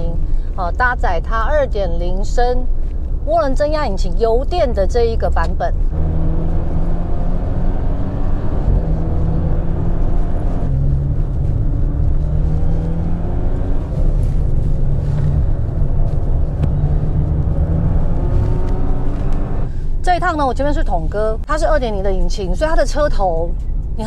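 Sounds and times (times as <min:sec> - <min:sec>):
car engine accelerating: 0:04.5 - 0:20.8.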